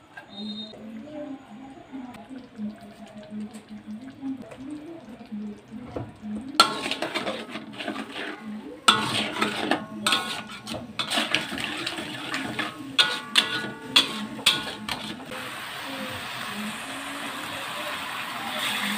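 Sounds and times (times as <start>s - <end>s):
wok ringing: 6.6s - 15.3s
metal spatula scraping wok: 6.6s - 15.4s.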